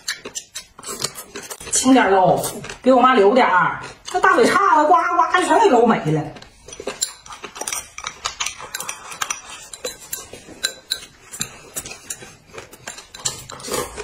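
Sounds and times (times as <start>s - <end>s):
chopsticks clicking on dishes: 6.6s - 13.7s.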